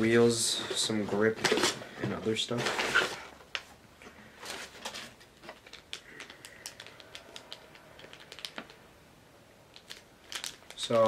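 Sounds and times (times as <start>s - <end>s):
plastic bag crinkling: 4.4s - 8.8s, 9.7s - 11.0s.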